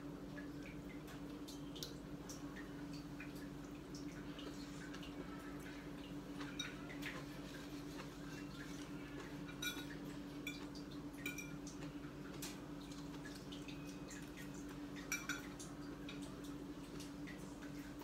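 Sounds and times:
utensils and dishes clinking: 6.4 - 12.5, 15.0 - 16.2.

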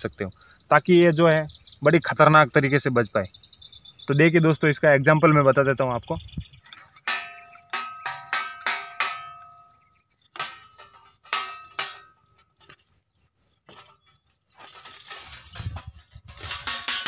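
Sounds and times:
wire hooks clanging on steel plate: 6.7 - 9.8, 10.4 - 12.8, 14.6 - 17.0.

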